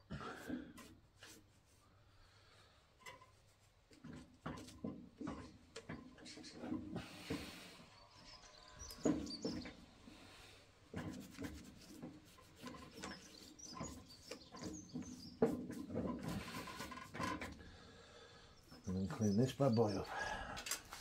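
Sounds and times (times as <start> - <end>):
birds chirping: 6.0 - 10.6, 12.6 - 21.0
cloth rag wiping metal part: 10.9 - 17.2.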